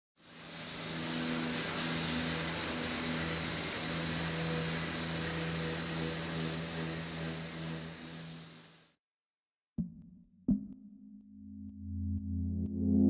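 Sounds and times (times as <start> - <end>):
orbital sander sanding: 0.2 - 8.8.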